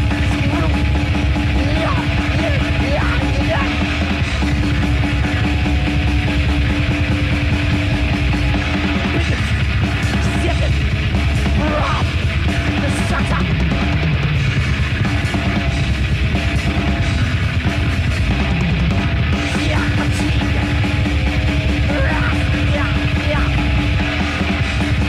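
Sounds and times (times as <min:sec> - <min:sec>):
death metal band playing live: 0:00.0 - 0:25.0.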